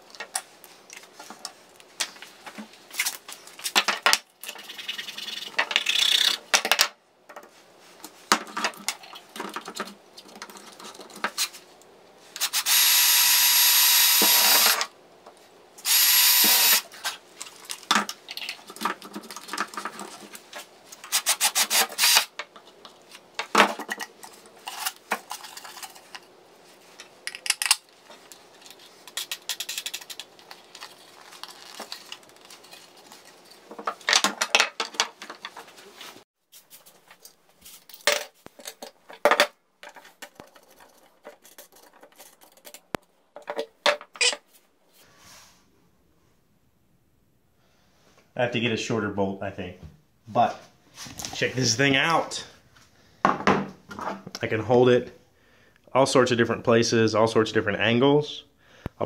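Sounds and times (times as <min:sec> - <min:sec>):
cordless drill whining: 0:12.4 - 0:14.9, 0:15.8 - 0:16.8, 0:21.7 - 0:22.3.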